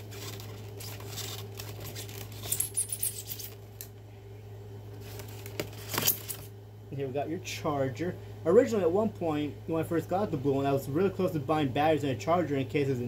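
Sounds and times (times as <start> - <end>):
plastic packaging rustling: 0.0 - 3.6, 5.0 - 6.4
steady low hum: 0.0 - 13.0.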